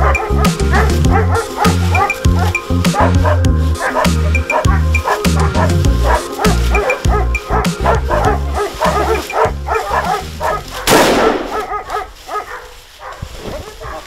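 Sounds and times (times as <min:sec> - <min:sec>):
background music: 0:00.0 - 0:12.1
hounds baying and yelping: 0:00.0 - 0:14.0
rifle shot: 0:10.9 - 0:11.7.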